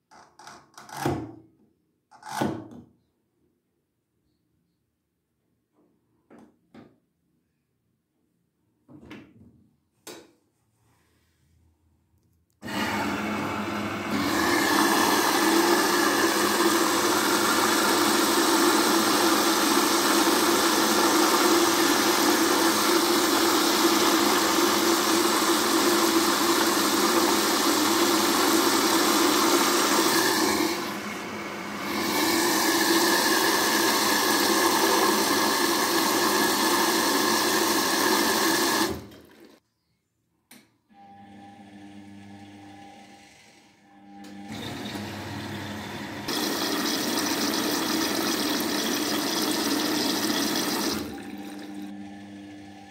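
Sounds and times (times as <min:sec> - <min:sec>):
water rushing into washing machine: 0:12.6 - 0:39.6, 0:44.3 - 0:52.9.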